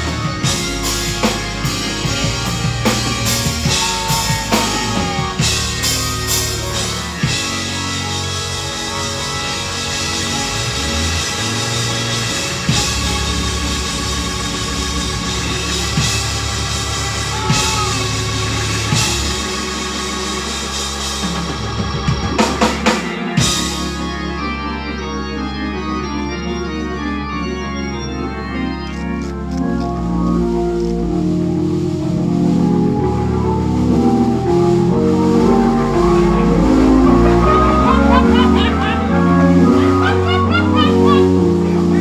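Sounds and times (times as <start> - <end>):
drums: 0.0 - 24.4
organ playing gospel chords: 0.0 - 42.0.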